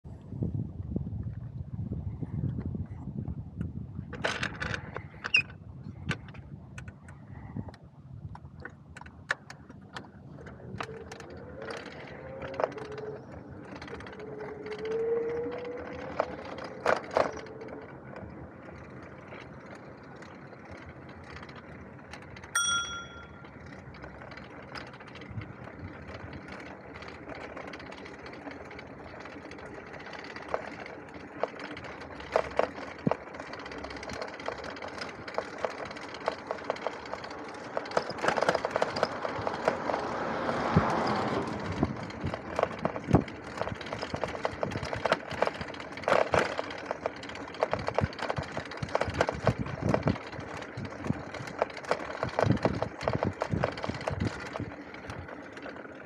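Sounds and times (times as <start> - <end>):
bicycle rattling clicks and knocks: 3.6 - 56.0
bicycle rolling over concrete: 3.6 - 56.0
bicycle bell ding: 22.6 - 23.4
wavering tone: 22.6 - 23.5.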